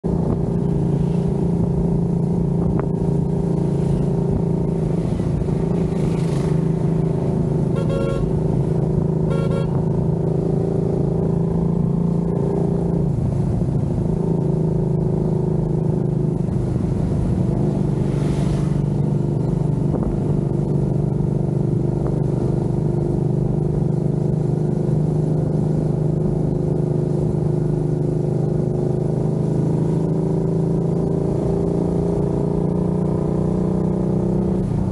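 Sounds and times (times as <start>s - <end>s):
motorcycle engine running: 0.0s - 34.9s
horn beeps: 7.7s - 8.4s, 9.3s - 9.8s.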